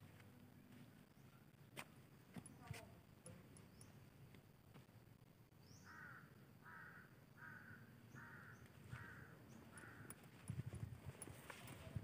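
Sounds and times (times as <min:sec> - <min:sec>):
small birds chirping: 0:00.0 - 0:12.0
bird calling: 0:05.6 - 0:10.4.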